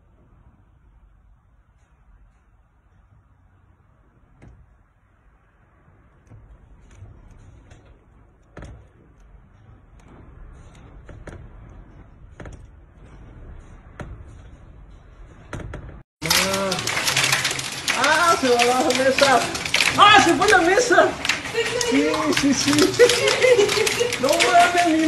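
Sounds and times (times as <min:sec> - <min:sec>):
knocks and rattles: 0:06.2 - 0:25.0.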